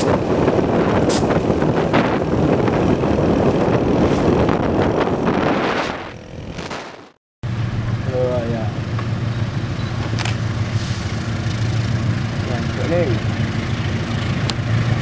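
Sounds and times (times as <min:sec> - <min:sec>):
wind buffeting microphone: 0:00.0 - 0:06.7
vehicle road and engine noise: 0:00.0 - 0:15.0.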